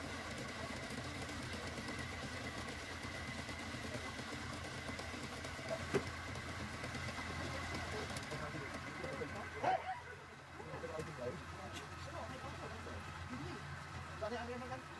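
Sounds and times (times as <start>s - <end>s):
wood lathe humming and whining: 0.0s - 14.9s.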